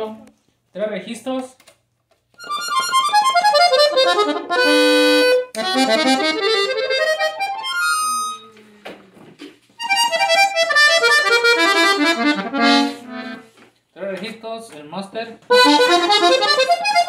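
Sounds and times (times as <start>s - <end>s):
button accordion playing: 2.4s - 8.6s, 9.8s - 13.6s, 15.5s - 17.0s.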